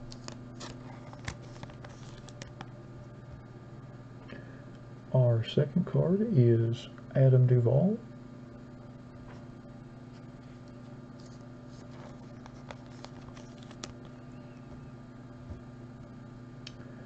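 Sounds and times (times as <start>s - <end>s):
steady low hum: 0.0s - 17.0s
trading cards clicking and scraping: 0.1s - 2.7s, 11.2s - 14.5s.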